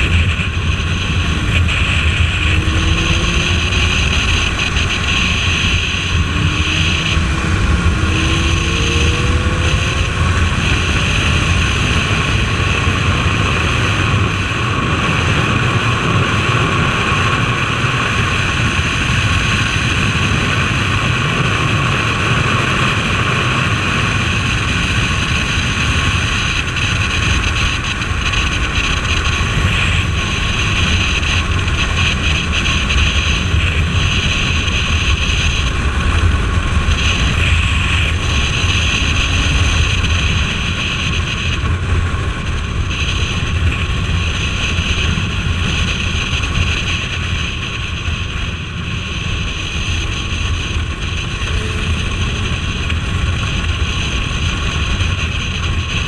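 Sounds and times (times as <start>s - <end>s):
rising engine whines: 0.0s - 14.9s
motorcycle engine drone: 0.0s - 56.0s
wind on microphone: 0.0s - 56.0s.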